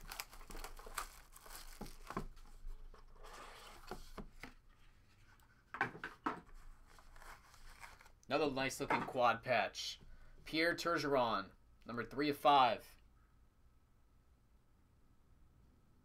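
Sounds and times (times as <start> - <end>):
rustling and tearing packaging: 0.0 - 4.1, 6.5 - 8.2.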